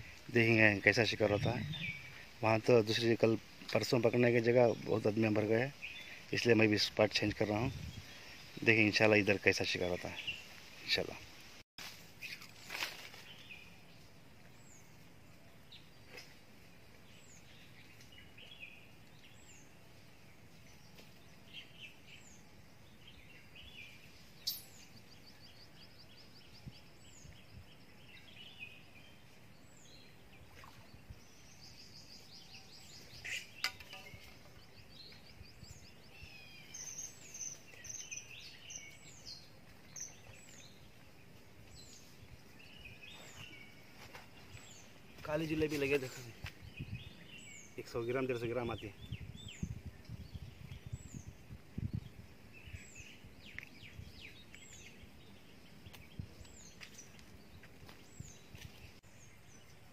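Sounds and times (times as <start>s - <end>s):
wild birds calling: 0.0s - 3.6s, 12.2s - 51.5s.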